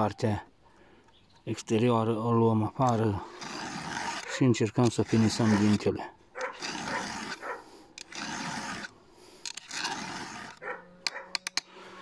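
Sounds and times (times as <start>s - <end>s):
file rasping on chainsaw chain: 2.8s - 11.9s.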